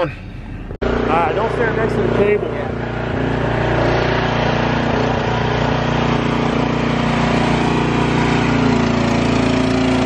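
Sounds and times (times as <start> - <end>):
engine running steadily: 0.0 - 10.0.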